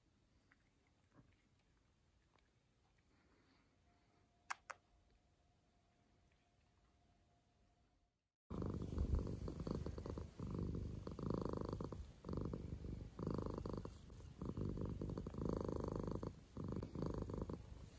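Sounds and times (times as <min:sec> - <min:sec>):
cat purring: 0:08.5 - 0:17.9.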